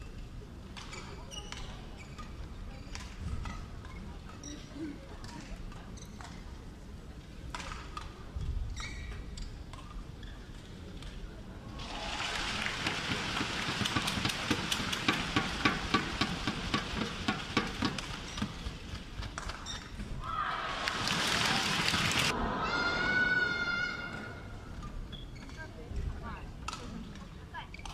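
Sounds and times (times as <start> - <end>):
crowd noise: 11.3 - 15.9, 20.1 - 27.5
crowd clapping: 11.8 - 15.3, 20.7 - 22.3.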